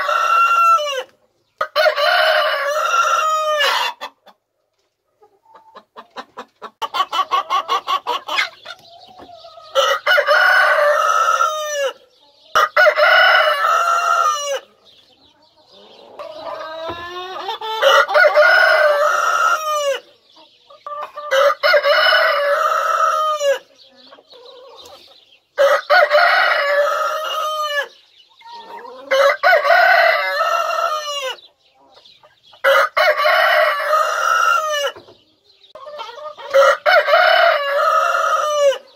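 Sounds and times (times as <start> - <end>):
chicken clucking: 0.0 - 38.9
rooster crowing: 9.7 - 12.0, 17.8 - 20.0, 29.1 - 31.4, 32.6 - 35.0, 36.5 - 38.9.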